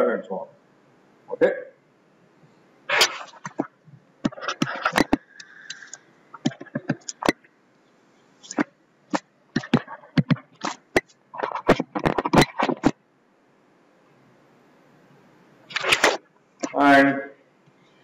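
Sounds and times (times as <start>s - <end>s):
stylus scratching on tablet: 4.3s - 7.3s
stylus tapping on tablet: 9.6s - 11.1s.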